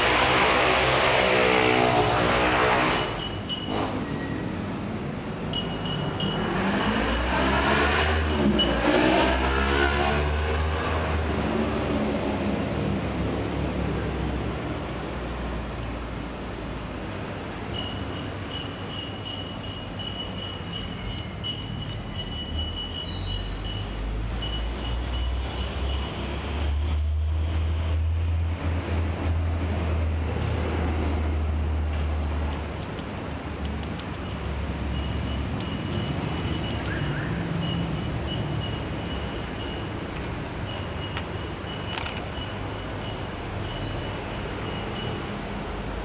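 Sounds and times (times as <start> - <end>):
motor engine passing by: 0.0 - 4.0, 6.3 - 15.4.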